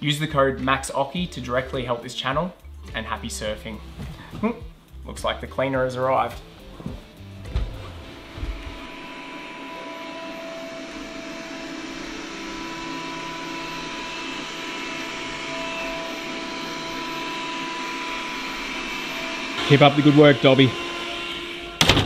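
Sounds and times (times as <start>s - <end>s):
faint steady tones: 5.8s - 22.0s
robot vacuum motor whirr: 8.3s - 22.0s.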